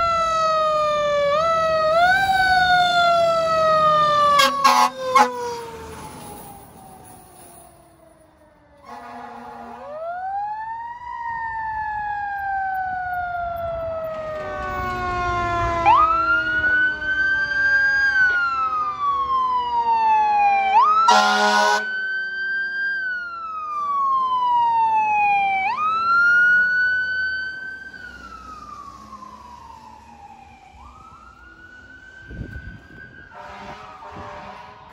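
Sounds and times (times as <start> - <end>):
mechanical siren wailing: 0.0 - 7.2, 8.6 - 34.9
air horn blast: 4.4 - 5.6, 8.8 - 10.0, 21.1 - 21.9, 33.3 - 34.9.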